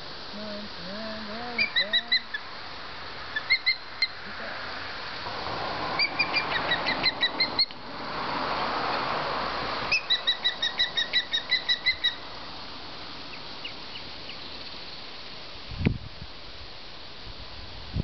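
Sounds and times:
ospreys chirping: 0.9 - 2.5, 3.3 - 4.3, 6.0 - 7.8, 9.9 - 12.4
rushing noise: 1.3 - 13.3.

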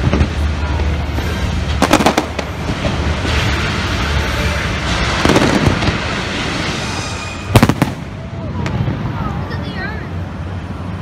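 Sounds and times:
fireworks crackling and rumbling: 0.0 - 11.0
sharp firework bangs: 1.7 - 9.0.

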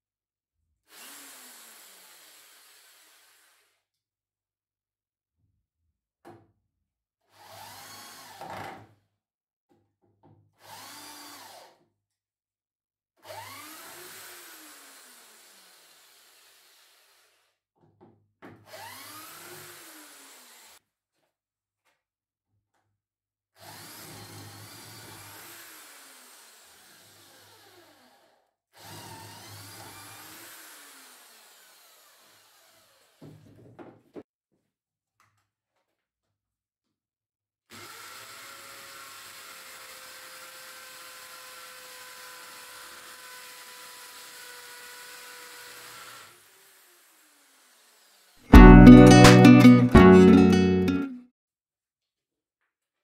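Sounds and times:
impact drill drilling into concrete: 0.9 - 3.8, 7.3 - 8.8, 10.6 - 11.8, 13.2 - 17.5, 18.7 - 20.8, 23.6 - 33.3, 37.7 - 48.4
impact drill drilling into wood: 0.9 - 3.8, 7.3 - 8.8, 10.6 - 11.8, 13.2 - 17.5, 18.7 - 20.8, 23.6 - 33.3, 37.7 - 48.4.

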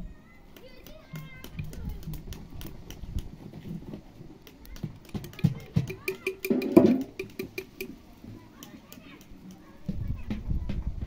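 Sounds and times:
firewood crackling: 0.2 - 11.0
metal spoon clinking on glass jar: 5.2 - 8.0.

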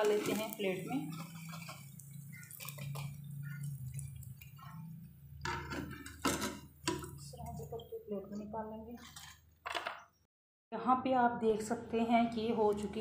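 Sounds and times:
oil sizzling and crackling: 0.0 - 7.8
skimmer knocking: 0.0 - 8.5.

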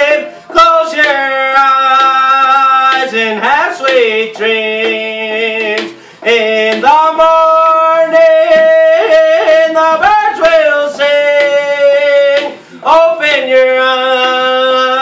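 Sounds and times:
frame drum beat: 0.0 - 15.0
man singing long held notes: 0.0 - 15.0.

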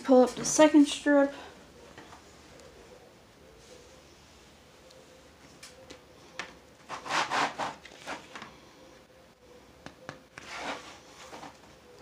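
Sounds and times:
paper sheet rustling: 6.8 - 8.4, 10.4 - 11.6.

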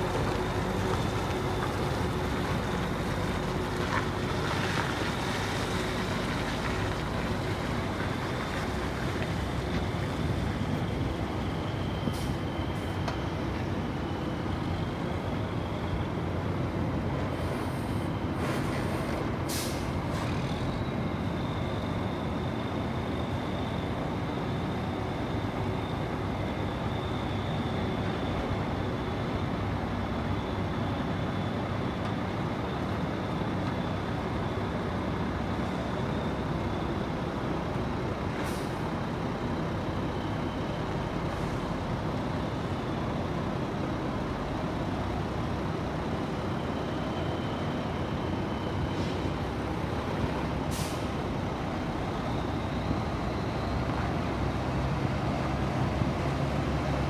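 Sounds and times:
air brake hiss: 17.4 - 20.5, 50.7 - 51.2.

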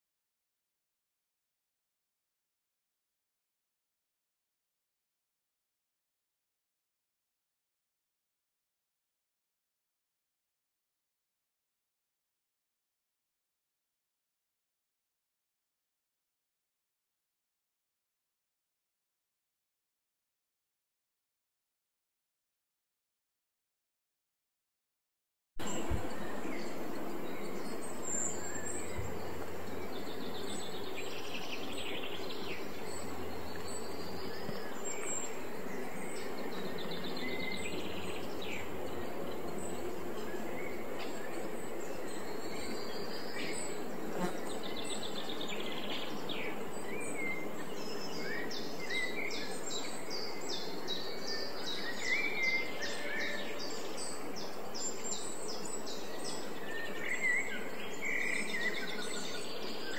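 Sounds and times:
small birds chirping: 25.6 - 59.9
steady background hiss: 25.6 - 59.9.

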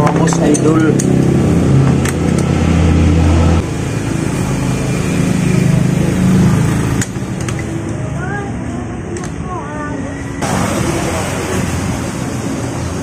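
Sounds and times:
vehicle engine running: 0.0 - 9.1.

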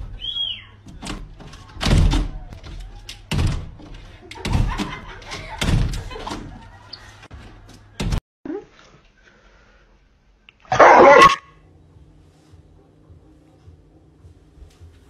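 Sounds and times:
glass door banging shut: 0.8 - 6.7.

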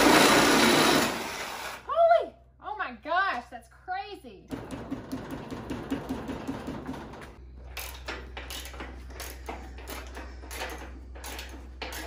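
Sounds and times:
steady low hum: 7.3 - 12.0
ratchet wrench clicking: 7.8 - 12.0.

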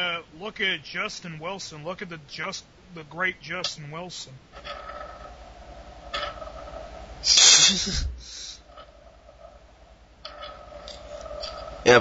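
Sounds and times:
electrical hum: 0.0 - 12.0
breathy exhale into microphone: 7.4 - 8.6
soft breath: 7.6 - 8.7.

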